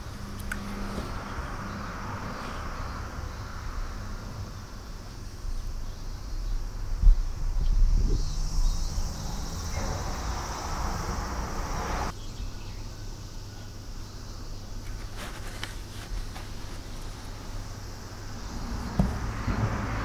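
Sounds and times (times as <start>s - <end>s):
insects droning: 0.0s - 20.0s
sharp thump: 18.8s - 19.8s.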